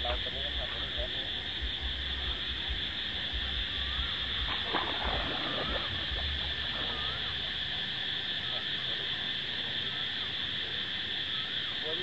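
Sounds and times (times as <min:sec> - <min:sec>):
insects buzzing: 0:00.0 - 0:12.0
fish splashing in water: 0:01.9 - 0:10.5.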